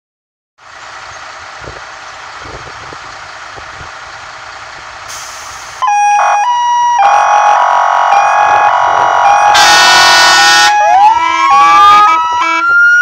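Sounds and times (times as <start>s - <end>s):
fire engines idling: 0.6s - 13.0s
two-tone emergency siren: 5.8s - 13.0s.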